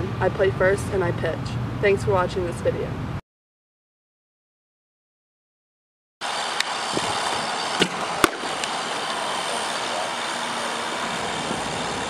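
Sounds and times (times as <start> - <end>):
steady background noise: 0.0 - 3.2, 6.2 - 12.0
bat cracking against ball: 7.8 - 8.8.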